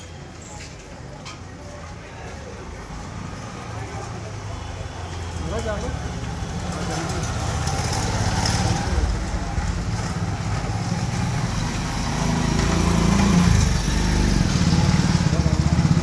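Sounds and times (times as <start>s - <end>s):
street noise: 0.0s - 16.0s
vehicle engine rumbling: 5.4s - 16.0s.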